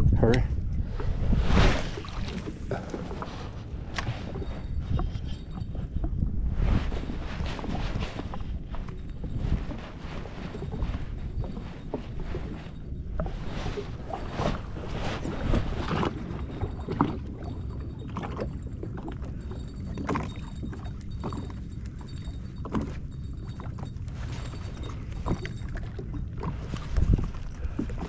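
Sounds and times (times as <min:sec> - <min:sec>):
steady low rumble: 0:00.0 - 0:28.0
waves lapping against hull: 0:00.0 - 0:28.0.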